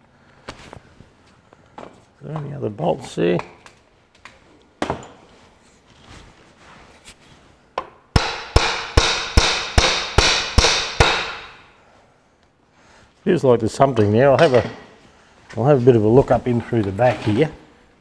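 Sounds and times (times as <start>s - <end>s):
hammer striking metal: 8.2s - 11.7s.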